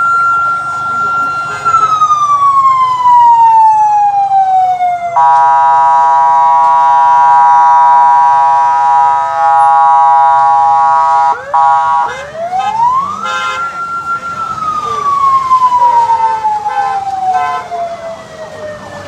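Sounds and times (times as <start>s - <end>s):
police siren wailing: 0.0s - 19.0s
multi-tone horn blast: 5.2s - 13.7s.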